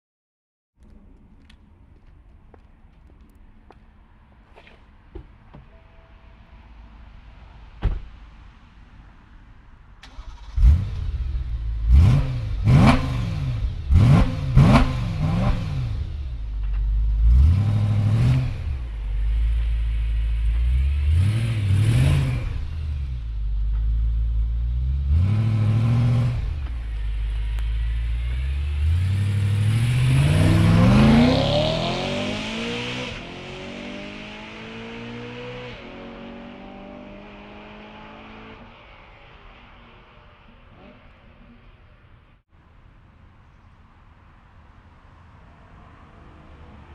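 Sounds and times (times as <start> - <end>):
car engine revving: 10.0 - 41.6.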